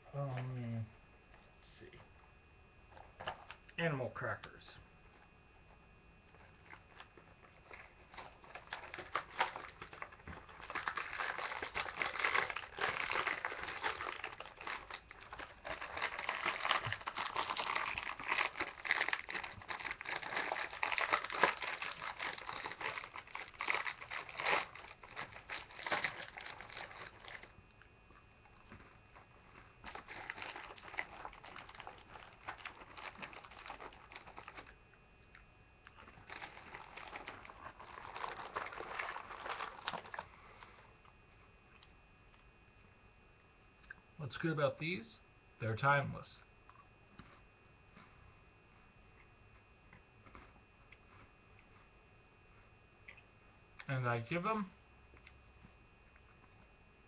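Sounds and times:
crackers crunching: 5.1 - 42.4, 46.6 - 48.2, 49.1 - 54.0, 55.0 - 56.8
plastic bag crinkling: 6.4 - 27.8, 28.5 - 34.8, 35.8 - 40.9.

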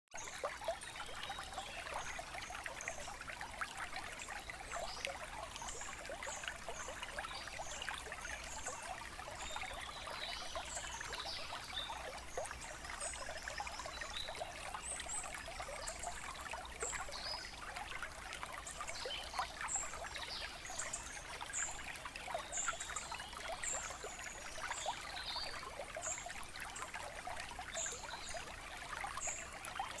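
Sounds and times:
trickling running water: 0.2 - 30.0.

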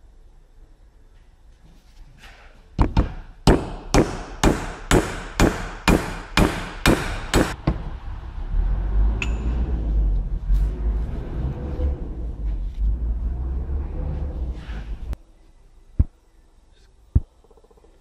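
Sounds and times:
low rumble: 7.6 - 15.2.

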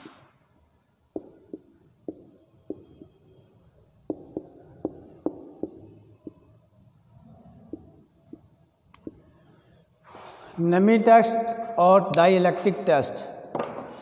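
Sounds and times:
marker writing on whiteboard: 0.0 - 9.9.

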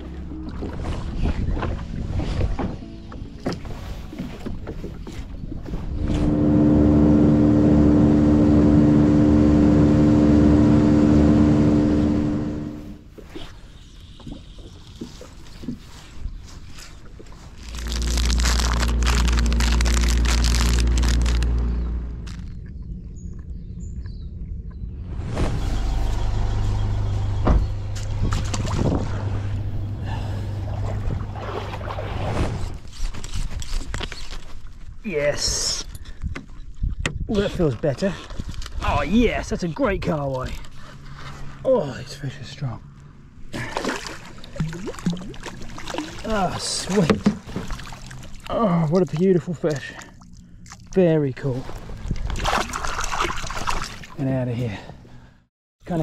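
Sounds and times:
outboard motor running: 0.0 - 13.0, 17.6 - 22.8, 26.2 - 32.4
boat engine humming: 0.0 - 32.9, 39.7 - 56.0.

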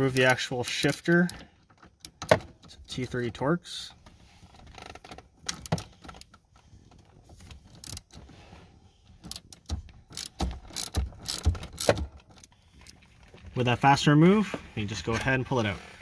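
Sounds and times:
hand ratchet clicking: 7.8 - 8.1, 9.2 - 12.1.

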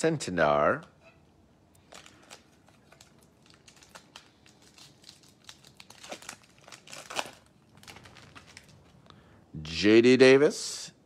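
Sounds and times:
wrapper torn open and crinkled: 1.8 - 9.0.

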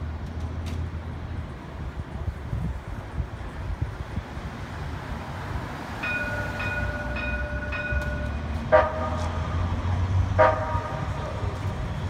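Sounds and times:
street traffic rumble: 0.0 - 12.0
streetcar warning bell ringing: 5.9 - 11.8.

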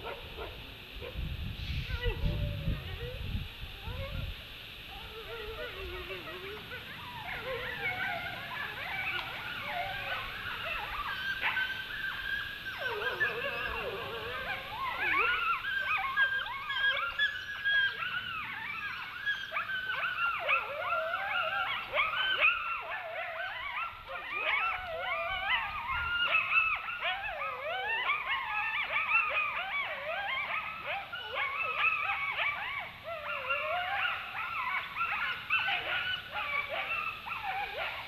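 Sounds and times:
wolves howling in chorus: 0.0 - 38.0
wavering yips: 1.7 - 38.0.

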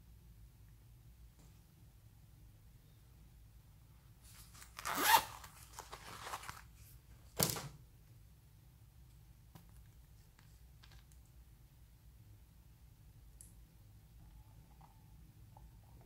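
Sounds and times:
zipper-like rustle: 4.2 - 6.6.

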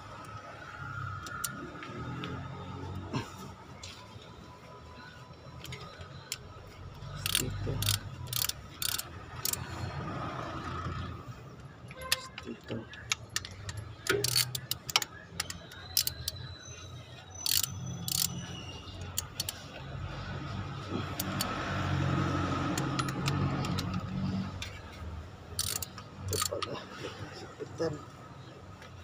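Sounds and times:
socket wrench clinking on engine: 7.2 - 9.7, 11.9 - 16.5, 17.4 - 19.6, 21.0 - 21.6, 22.6 - 24.8, 25.5 - 26.7.

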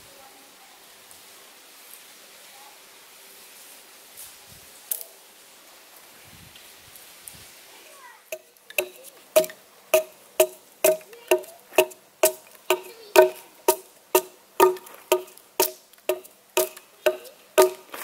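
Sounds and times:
hatchet chopping log: 8.7 - 18.0.

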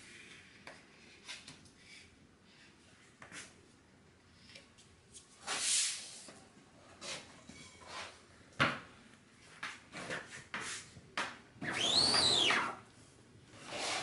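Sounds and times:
rising and falling squeak: 11.6 - 12.8.

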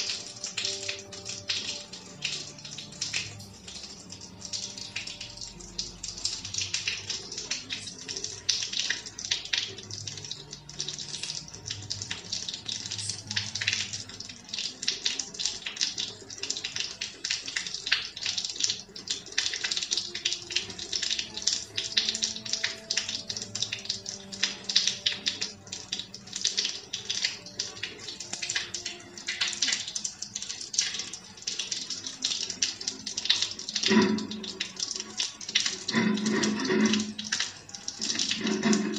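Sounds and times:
rain falling: 0.0 - 38.9.

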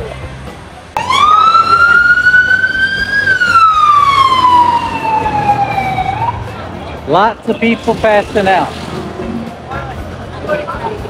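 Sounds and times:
siren wailing: 1.0 - 6.5.

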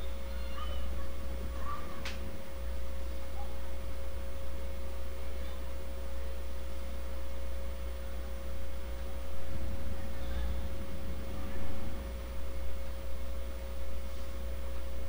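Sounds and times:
thin whining tone: 0.0 - 4.2, 8.4 - 14.7
steady low hum: 0.0 - 15.0.

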